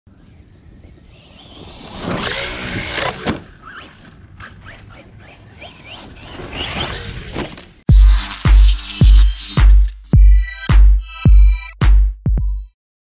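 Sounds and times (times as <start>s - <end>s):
rc truck electric motor whining: 0.1s - 9.6s.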